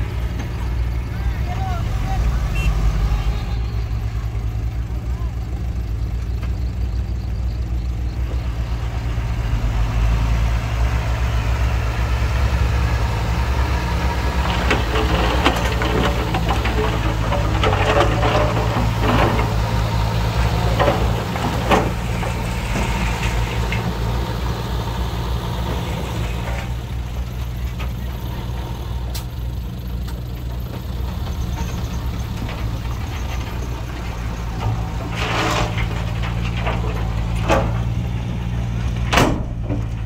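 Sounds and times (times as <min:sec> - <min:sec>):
heavy diesel engine running: 0:00.0 - 0:40.0
clattering and sharp knocks: 0:14.3 - 0:24.1.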